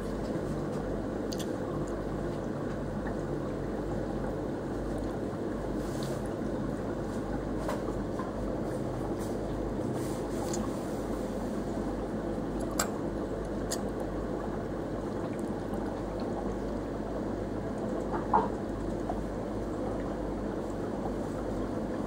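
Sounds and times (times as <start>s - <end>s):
aquarium pump running: 0.0s - 22.0s
trickling water: 11.6s - 22.0s.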